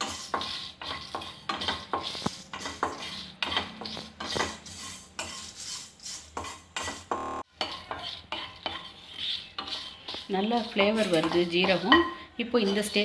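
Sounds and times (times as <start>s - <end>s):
spatula scraping a pan: 0.0s - 13.0s.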